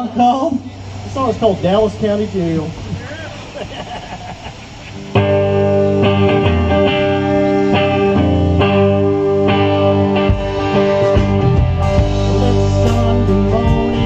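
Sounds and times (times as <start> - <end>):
live rock band playing: 4.5 - 14.0.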